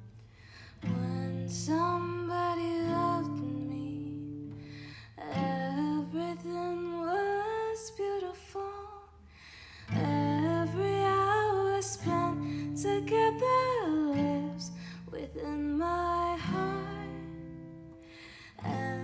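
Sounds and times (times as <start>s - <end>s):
woman singing: 0.8s - 9.2s, 9.9s - 19.0s
strummed acoustic guitar: 9.8s - 19.0s.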